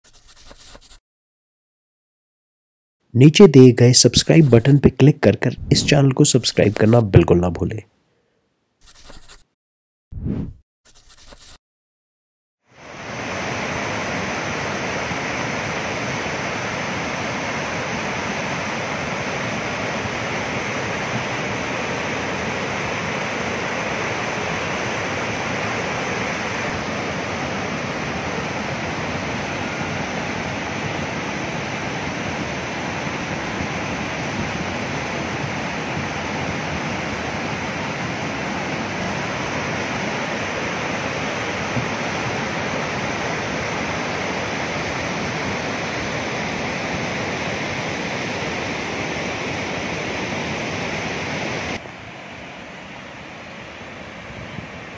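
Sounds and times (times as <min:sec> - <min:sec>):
river rushing over boulders: 0:12.8 - 0:54.9.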